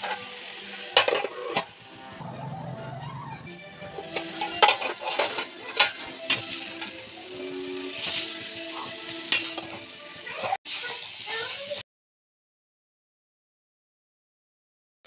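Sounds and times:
food sizzling: 0:00.0 - 0:11.8
metal spatula scraping pan: 0:01.0 - 0:02.8, 0:03.8 - 0:06.8.

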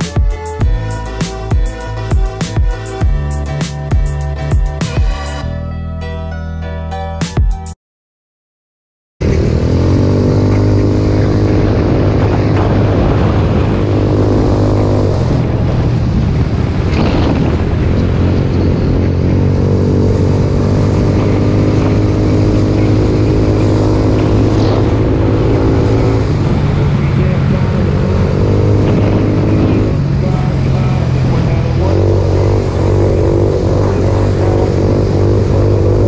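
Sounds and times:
trike engine running: 0:09.2 - 0:36.0
wind and road noise: 0:09.2 - 0:36.0.

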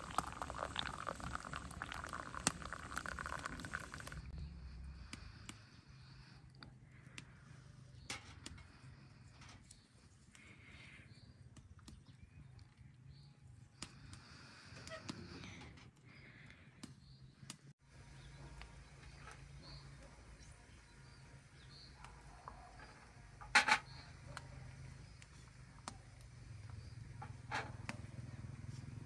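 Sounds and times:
tea pouring into a glass: 0:00.0 - 0:04.3.

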